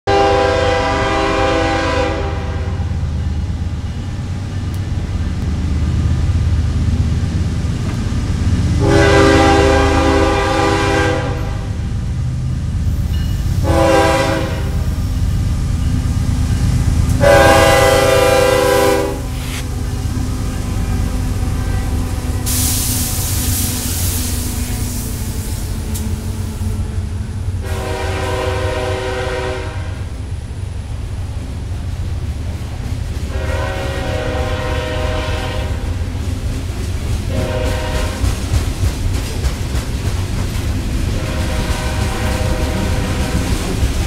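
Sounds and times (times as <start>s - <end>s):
train rumbling: 0.0s - 44.0s
locomotive air horn blasts: 0.1s - 2.9s, 8.8s - 11.8s, 13.6s - 14.9s, 17.1s - 30.1s, 33.3s - 35.9s, 37.3s - 38.3s, 41.1s - 43.6s.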